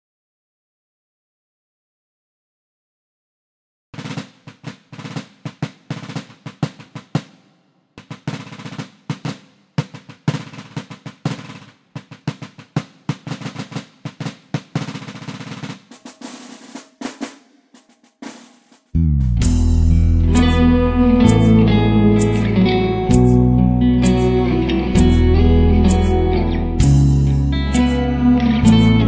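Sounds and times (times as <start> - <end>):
snare drum rolls: 4.0 - 19.7.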